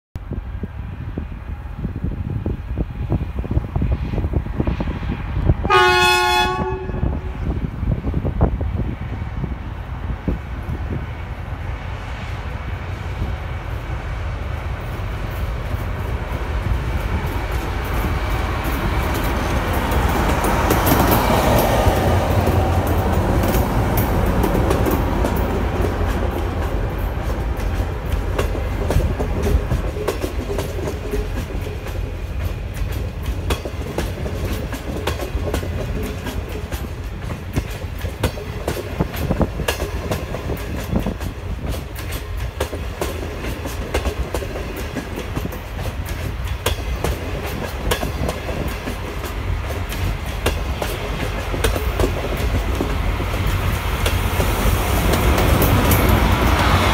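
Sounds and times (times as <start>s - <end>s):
train rumble: 0.2s - 56.9s
clickety-clack wheel clicks: 22.8s - 53.0s.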